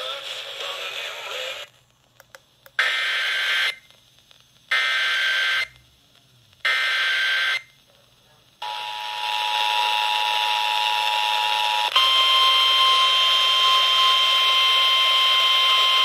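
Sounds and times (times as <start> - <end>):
music with singing from radio: 0.0 - 1.9.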